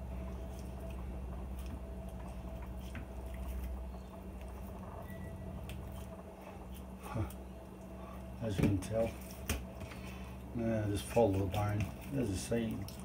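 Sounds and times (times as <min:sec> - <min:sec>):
steady low hum: 0:00.0 - 0:13.0
wet squishing of raw meat: 0:11.0 - 0:13.0.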